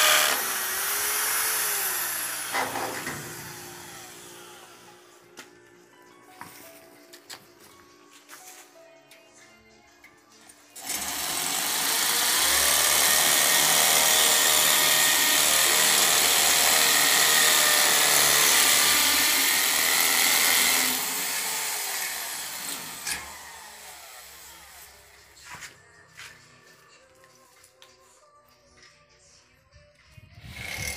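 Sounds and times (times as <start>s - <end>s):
drill motor winding down: 0.0s - 5.1s, 10.8s - 24.9s
electric drill boring into metal: 0.0s - 5.1s, 10.8s - 25.0s, 30.5s - 30.9s.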